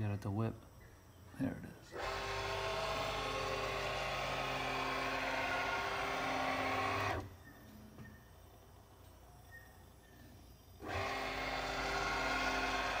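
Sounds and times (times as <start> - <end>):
servo motor whirring: 1.9 - 7.4, 10.8 - 13.0.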